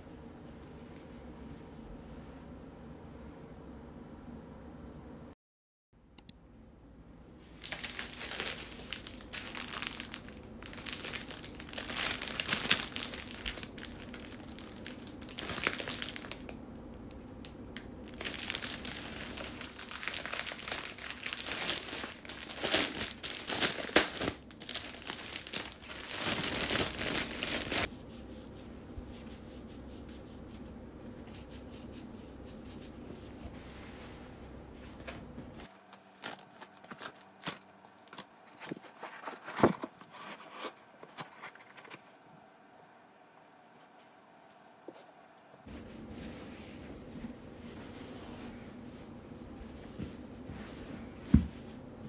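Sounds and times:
plastic bag crinkling: 0:07.6 - 0:16.8, 0:17.8 - 0:27.9, 0:35.6 - 0:42.0.

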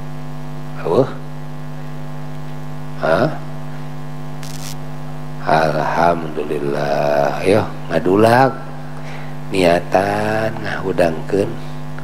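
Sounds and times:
electrical mains hum: 0:00.0 - 0:12.0
man speaking: 0:05.4 - 0:08.6, 0:09.5 - 0:11.8.

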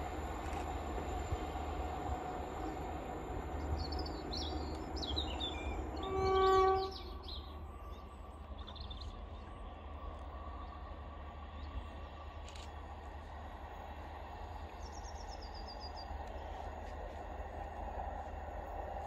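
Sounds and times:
train horn: 0:05.4 - 0:07.4.

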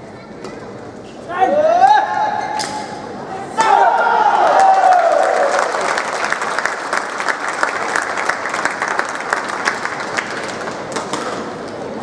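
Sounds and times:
crowd applauding: 0:04.5 - 0:11.0.

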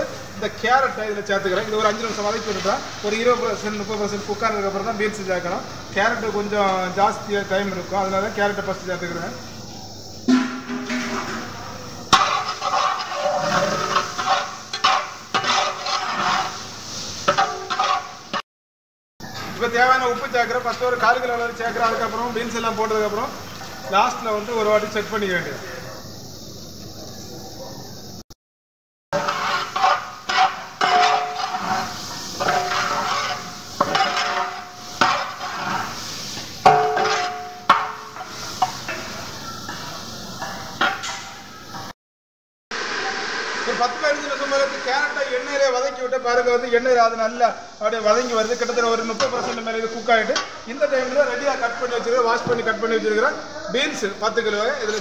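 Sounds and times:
carrots frying in oil: 0:00.0 - 0:18.4, 0:19.2 - 0:28.2, 0:29.2 - 0:41.9, 0:42.8 - 0:55.0
metal ladle scraping a pan: 0:01.6 - 0:03.8, 0:10.3 - 0:18.4, 0:29.2 - 0:41.9, 0:48.2 - 0:51.8, 0:54.7 - 0:55.0.

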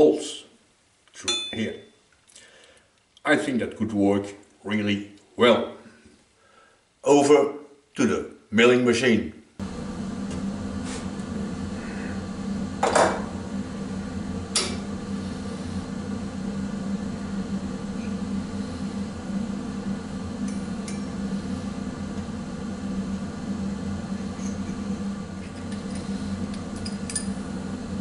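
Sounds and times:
low machine hum: 0:09.6 - 0:28.0.

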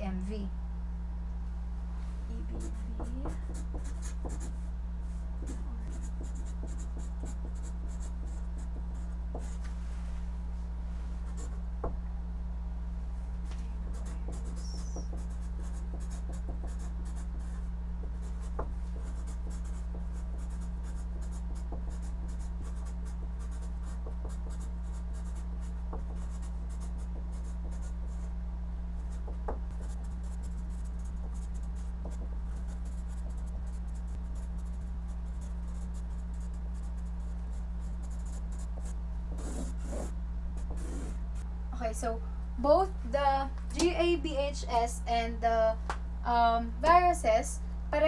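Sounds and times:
steady low hum: 0:00.0 - 0:48.0
marker pen scratching on paper: 0:02.4 - 0:04.6, 0:05.4 - 0:09.6, 0:11.3 - 0:11.6, 0:13.9 - 0:28.3, 0:29.0 - 0:41.5
marker taps: 0:02.5 - 0:04.5.

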